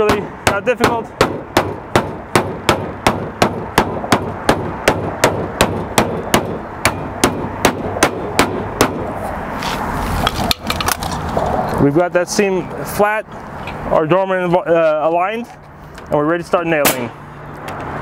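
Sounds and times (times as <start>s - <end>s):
hammer tapping on sheet metal: 0.0s - 9.0s.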